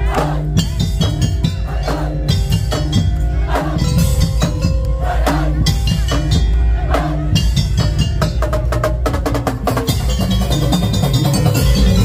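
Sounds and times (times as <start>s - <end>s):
pitched ringing tones: 0.0s - 8.8s
percussion ensemble playing: 0.0s - 12.0s.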